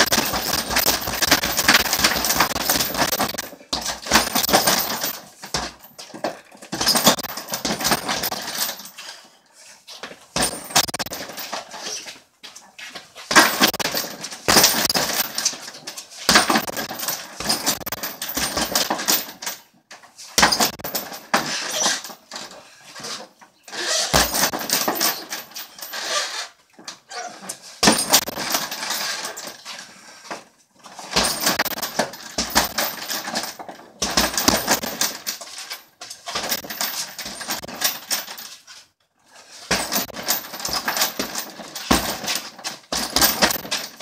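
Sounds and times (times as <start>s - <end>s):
punches hitting heavy bag: 0.0s - 5.8s, 13.3s - 15.2s, 24.2s - 24.6s, 27.8s - 28.5s, 34.0s - 35.0s, 39.7s - 43.8s
chain rattling: 0.0s - 9.3s, 10.3s - 11.9s, 13.3s - 19.7s, 20.4s - 23.1s, 23.8s - 26.4s, 27.8s - 29.8s, 30.9s - 38.7s, 39.4s - 44.0s.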